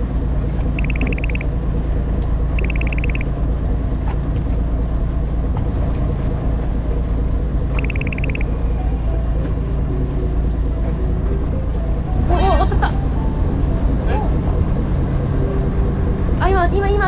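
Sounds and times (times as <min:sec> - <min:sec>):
boat engine rumble: 0:00.0 - 0:17.0
rapid high-pitched beeps: 0:00.7 - 0:01.5, 0:02.6 - 0:03.3, 0:07.7 - 0:08.5.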